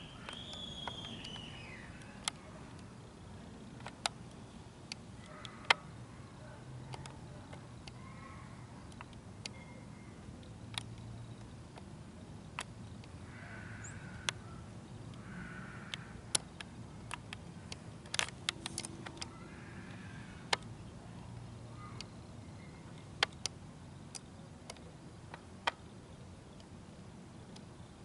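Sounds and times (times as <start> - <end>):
low steady hum: 0.0 - 28.0
camera handling clicks: 18.1 - 19.3.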